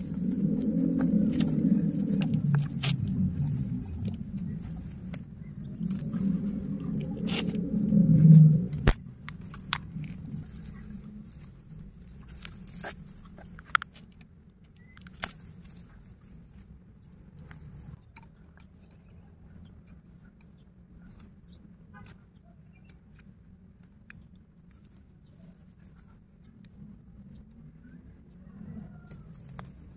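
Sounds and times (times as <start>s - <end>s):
loud low rumble: 0.0s - 12.7s.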